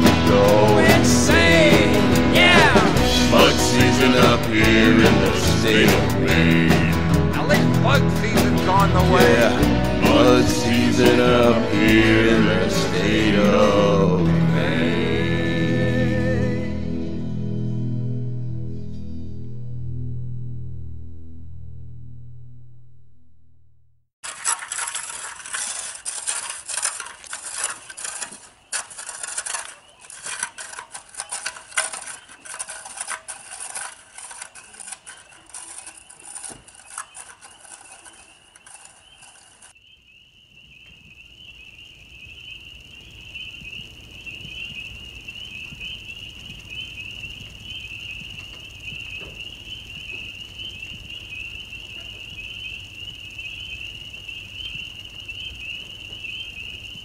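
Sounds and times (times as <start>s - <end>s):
frogs trilling: 24.2s - 57.0s.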